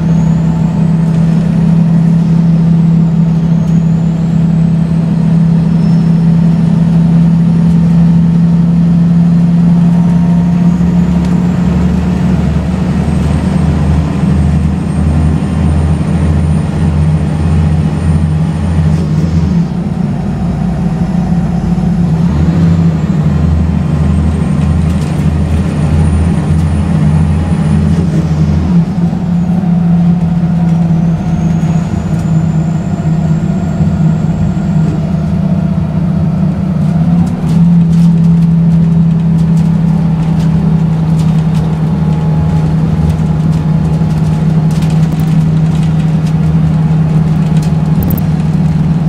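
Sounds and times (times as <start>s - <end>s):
bus engine drone: 0.0s - 49.0s
bus body clicking over bumps: 23.8s - 49.0s.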